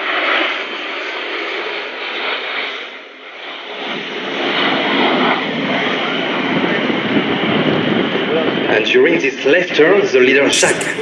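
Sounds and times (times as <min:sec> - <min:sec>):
jets flying overhead: 0:00.0 - 0:08.7.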